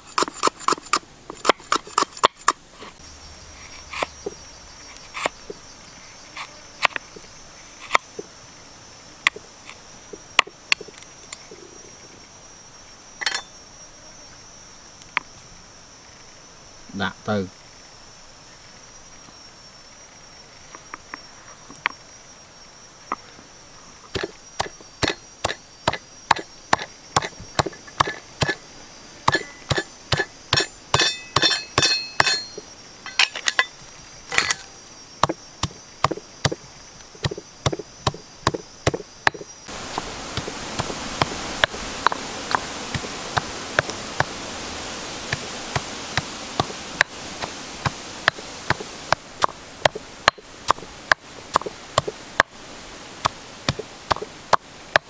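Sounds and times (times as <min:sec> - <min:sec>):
insect trilling: 0:00.0 - 0:55.0
stone pestle pounding in mortar: 0:29.3 - 0:32.5
hiss: 0:39.7 - 0:55.0.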